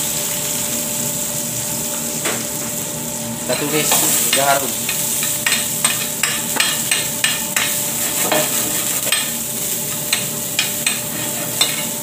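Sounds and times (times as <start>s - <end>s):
food sizzling in hot oil: 0.0s - 12.0s
metal spoon scraping a pan: 3.5s - 12.0s.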